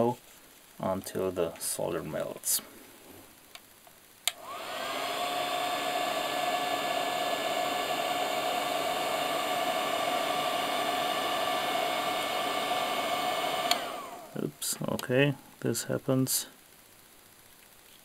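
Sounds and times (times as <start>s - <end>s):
heat gun fan whine: 4.2s - 15.0s
heat gun switch click: 4.3s - 4.5s, 13.6s - 13.9s.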